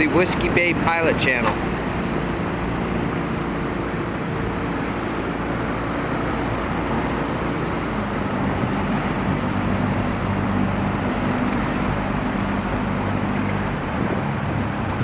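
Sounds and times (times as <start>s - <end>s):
boat engine running: 0.0s - 15.0s
water rushing around hull: 0.0s - 15.0s
wind: 0.0s - 15.0s.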